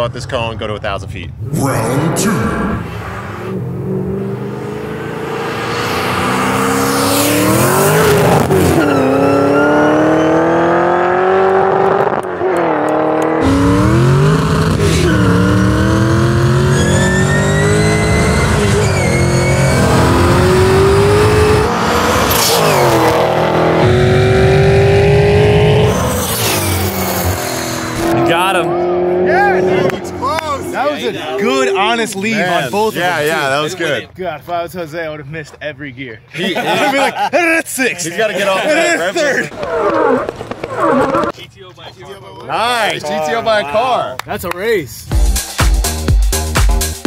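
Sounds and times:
race car engines accelerating: 1.3 - 34.0.

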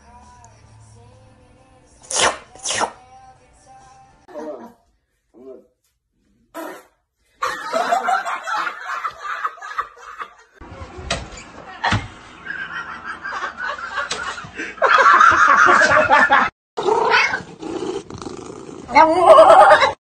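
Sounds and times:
people laughing: 7.4 - 10.6, 11.8 - 16.5.

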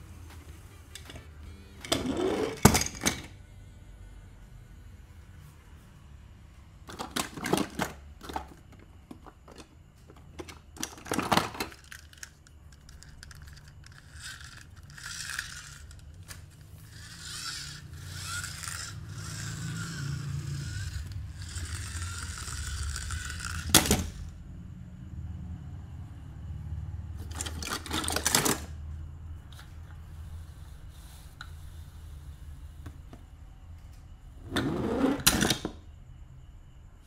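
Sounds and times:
toy cars clattering: 1.8 - 3.3, 6.9 - 24.3, 27.2 - 28.8.

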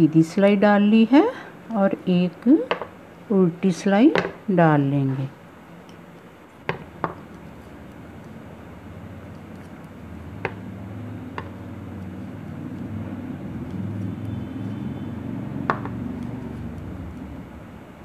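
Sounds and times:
low engine-like rumble: 7.4 - 18.0
knitting needles clicking: 9.2 - 14.9.

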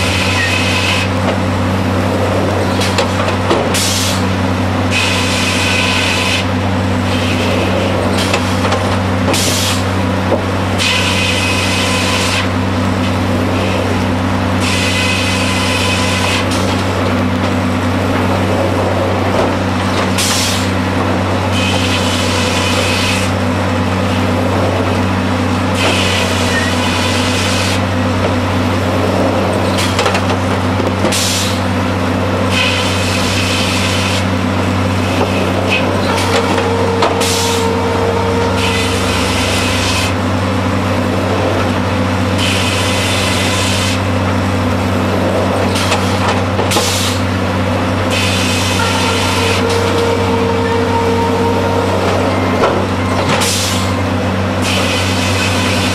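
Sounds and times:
sawmill low mechanical drone: 0.0 - 55.9
saw cutting bursts of high noise: 36.0 - 40.2, 48.0 - 55.9.

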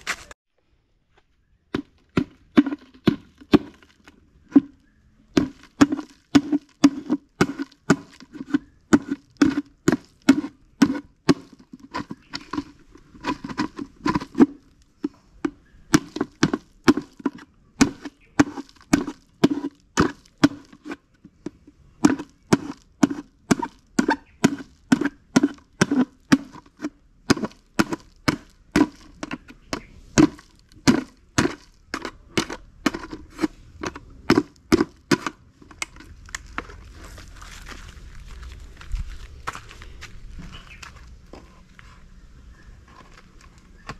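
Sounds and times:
tool knocking on clay pot: 1.7 - 36.0.

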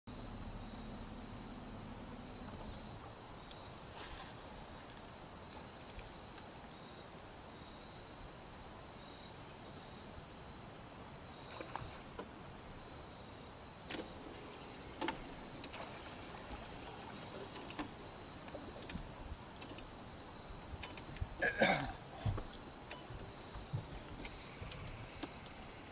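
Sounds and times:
faint low hum: 0.1 - 25.9
high insect trill: 0.1 - 25.9.

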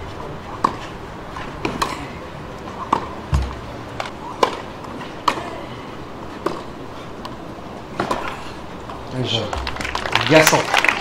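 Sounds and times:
tennis ball bouncing: 0.6 - 2.1, 2.7 - 5.5, 6.4 - 6.8, 7.9 - 10.1
tennis racket hitting ball: 0.6 - 2.1, 2.8 - 5.5, 6.4 - 6.7, 7.9 - 8.3.

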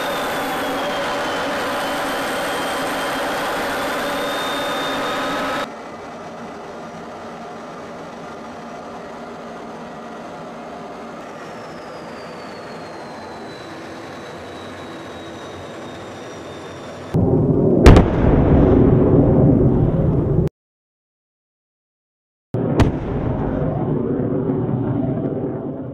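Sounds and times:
high jet whine: 0.0 - 17.4
jet aircraft engine rush: 0.0 - 18.4, 22.8 - 25.9.

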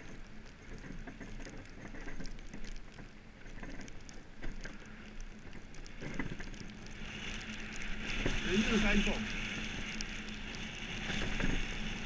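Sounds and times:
small ticks and crackles: 0.0 - 12.0
iceboat runners hissing on ice: 7.8 - 10.0.

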